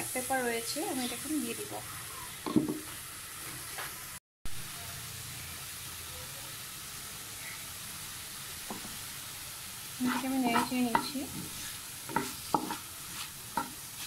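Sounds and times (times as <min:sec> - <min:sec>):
mince sizzling in a frying pan: 0:00.0 - 0:14.0
wooden bowl knock and scrape: 0:02.5 - 0:02.9.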